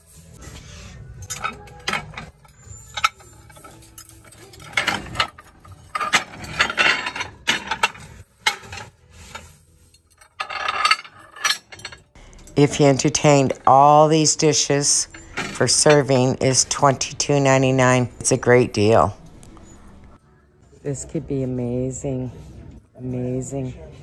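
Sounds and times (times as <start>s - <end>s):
ceramic dishes clinking and scraping: 1.2s - 20.2s.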